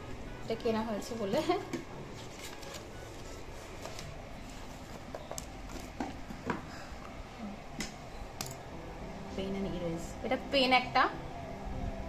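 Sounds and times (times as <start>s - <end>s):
paper rustling: 2.1s - 6.0s.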